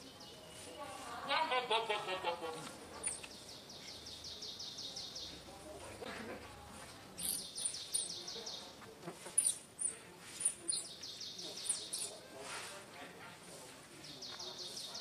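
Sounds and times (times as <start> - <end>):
bird chirping fast: 7.2 - 8.5, 9.3 - 12.2.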